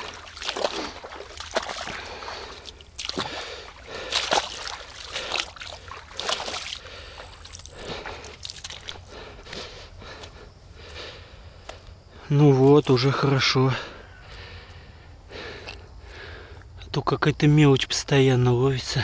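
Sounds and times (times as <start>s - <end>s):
water sloshing and splashing: 0.0s - 10.4s.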